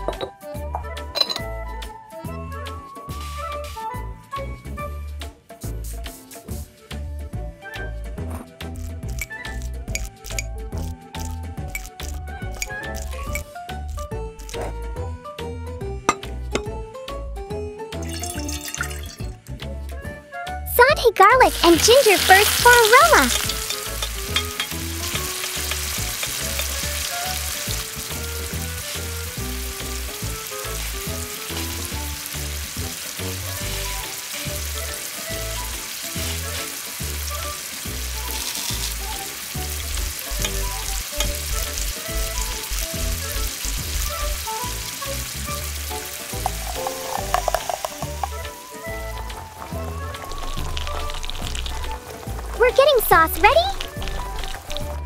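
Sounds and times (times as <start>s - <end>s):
spices sizzling in oil: 2.3s - 4.9s, 5.5s - 7.0s, 7.7s - 15.0s, 18.0s - 19.6s, 20.8s - 55.0s
spoon scraping wok: 21.8s - 27.7s, 46.3s - 48.5s.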